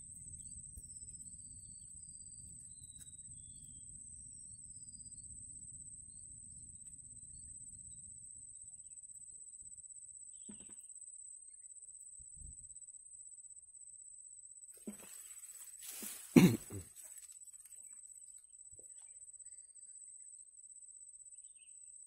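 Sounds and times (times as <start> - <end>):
insects stridulating: 0.0 - 22.0
short bird chirps: 10.3 - 10.8.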